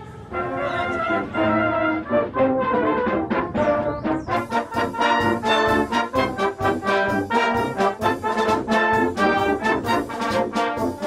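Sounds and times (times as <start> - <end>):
brass band playing: 0.0 - 11.0
trombone short notes: 2.6 - 11.0.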